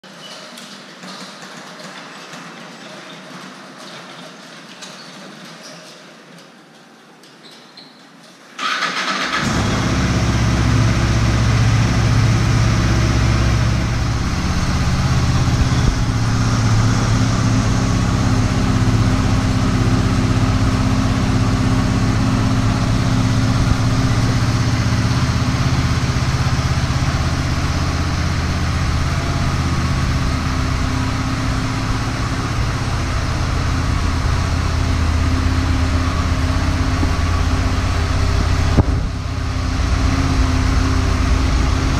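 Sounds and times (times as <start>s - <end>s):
motorcycle engine starting and idling: 8.6s - 41.9s.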